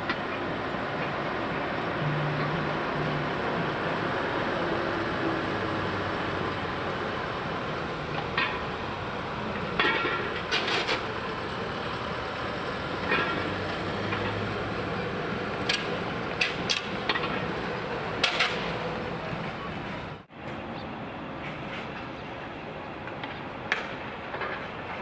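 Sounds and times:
diesel trucks running: 0.0 - 25.0
sharp clicks and clanks: 9.8 - 11.1, 15.6 - 17.5, 18.2 - 18.9.

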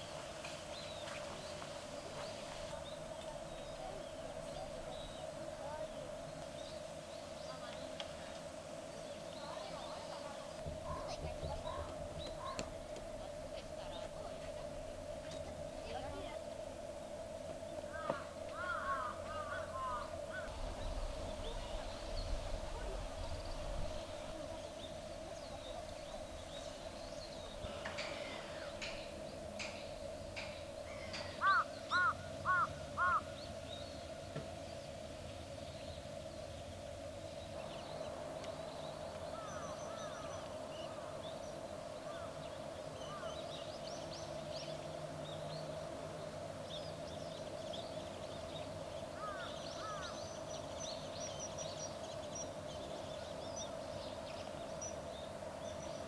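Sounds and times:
small birds chirping: 0.0 - 56.0
crow cawing: 17.9 - 20.5, 30.9 - 33.3, 49.2 - 50.2.

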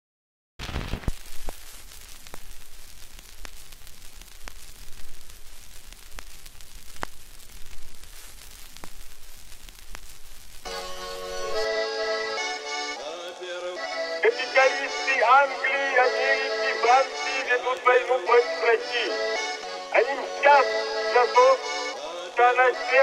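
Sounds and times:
record surface hiss and crackle: 0.6 - 23.0
accordion music: 10.7 - 23.0.

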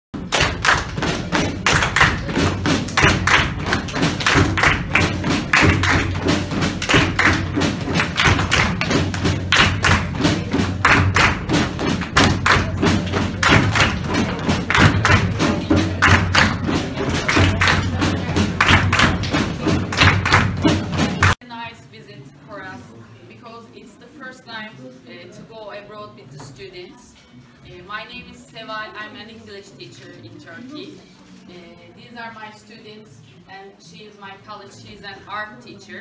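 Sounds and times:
people clapping hands rhythmically: 0.1 - 21.4.

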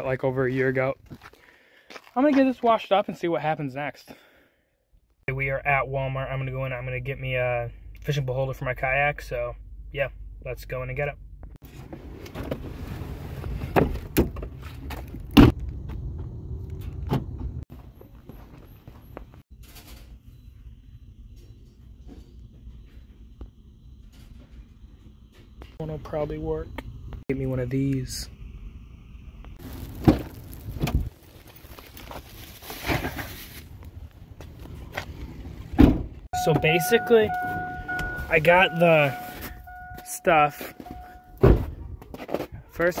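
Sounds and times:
footsteps on pavement: 1.0 - 2.4
plastic bag rustling: 29.6 - 33.9.

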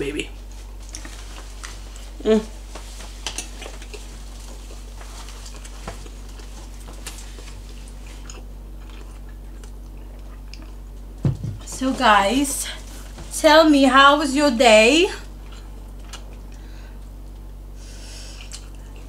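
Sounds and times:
steady low hum: 0.0 - 19.0
people chewing: 0.4 - 11.2, 15.3 - 19.0.

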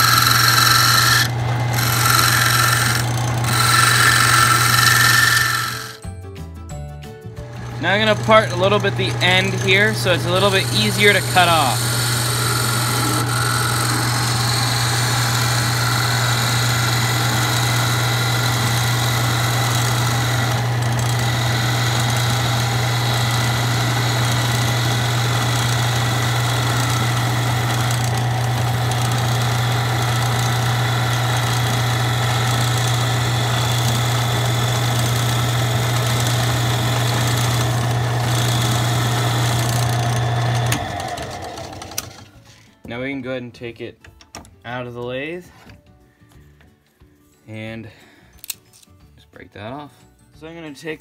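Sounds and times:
lathe motor hum: 0.0 - 6.0, 7.5 - 42.3
tool cutting spinning wood: 0.0 - 6.0, 7.4 - 42.3.

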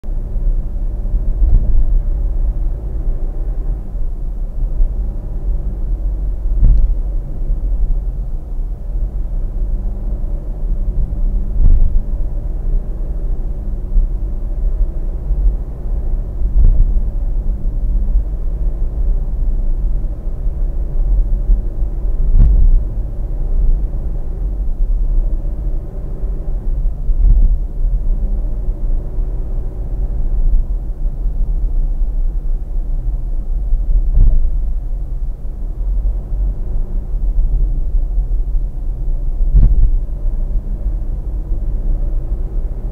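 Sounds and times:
car road and engine rumble: 0.0 - 42.9
short thump: 6.6 - 7.0, 22.3 - 22.8, 39.5 - 40.0.

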